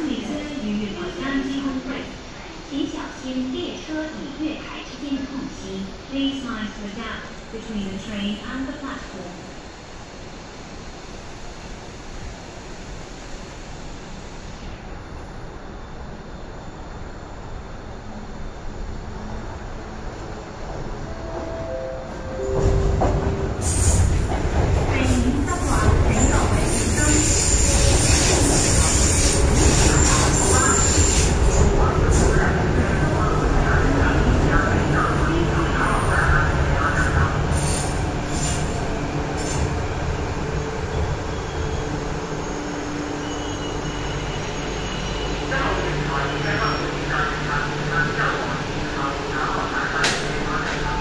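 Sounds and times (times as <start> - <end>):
train wheels rumbling on rails: 22.4 - 48.5.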